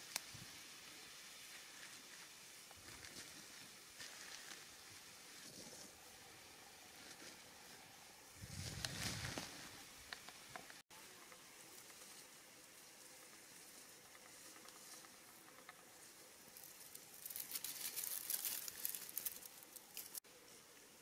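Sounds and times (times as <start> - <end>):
dry leaves rustling and crackling: 0.0 - 6.0, 8.4 - 9.9, 11.6 - 20.2
faint steady hiss: 0.0 - 21.0.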